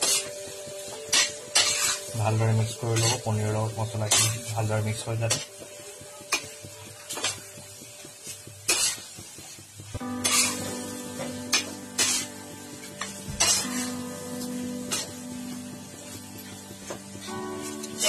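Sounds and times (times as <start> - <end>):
spoon scraping a wok: 0.0 - 2.2, 2.9 - 3.3, 4.0 - 4.5, 6.3 - 7.5, 8.2 - 9.5, 10.1 - 10.8, 11.5 - 14.0
background music: 0.0 - 18.0
light sizzle: 0.0 - 18.0.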